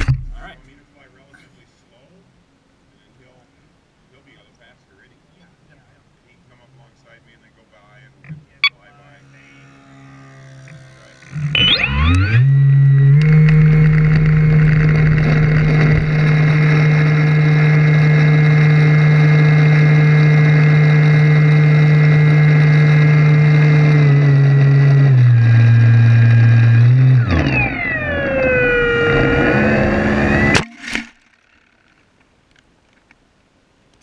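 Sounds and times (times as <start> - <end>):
model airplane engine running: 8.8 - 30.6.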